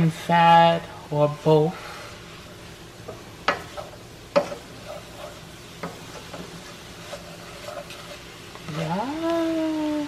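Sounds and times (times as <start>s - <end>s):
food sizzling in a skillet: 0.0s - 10.0s.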